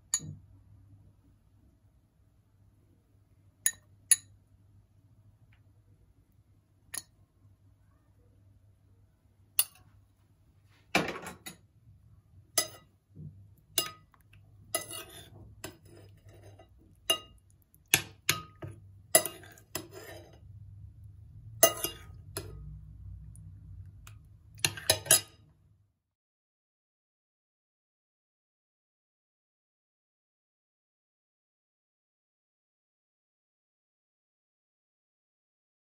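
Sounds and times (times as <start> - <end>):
metal spoon clinking on bowl: 0.0 - 0.4, 3.6 - 4.4, 9.6 - 9.8, 12.5 - 12.9, 13.7 - 20.4, 21.6 - 22.6, 24.6 - 25.4.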